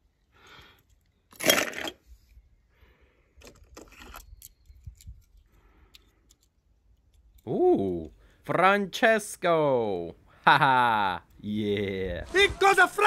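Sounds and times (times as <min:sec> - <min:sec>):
rustling noise: 0:12.1 - 0:13.0.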